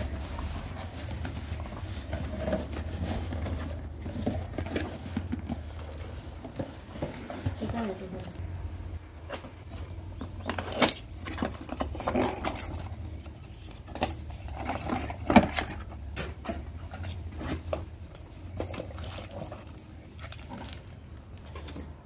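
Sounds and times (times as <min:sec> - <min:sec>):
cardboard scraping and rustling: 0:00.0 - 0:08.4
glass bangles clinking: 0:00.0 - 0:09.0, 0:10.2 - 0:17.1.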